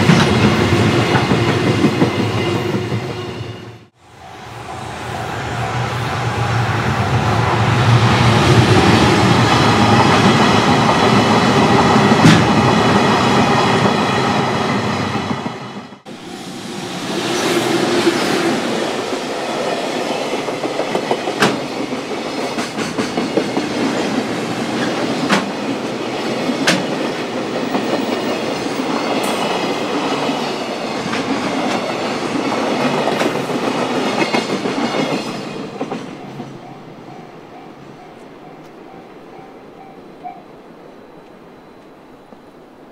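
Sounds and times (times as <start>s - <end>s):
freight train rumbling: 0.0s - 42.0s
wheels clacking over rail joints: 20.3s - 40.2s
crossing bell ringing: 35.5s - 40.6s.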